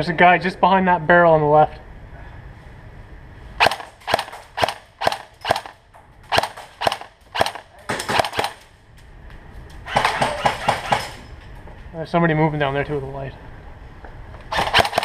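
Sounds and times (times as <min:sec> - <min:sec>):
airsoft rifle shots: 0:03.6 - 0:08.7, 0:09.8 - 0:11.2, 0:14.5 - 0:15.0.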